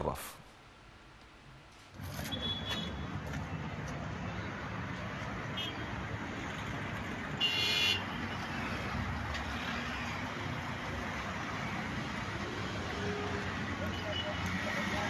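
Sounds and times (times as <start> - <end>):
road traffic noise: 0.6 - 15.0
car horn: 2.2 - 3.2, 5.6 - 5.9, 7.4 - 8.2, 13.8 - 14.5.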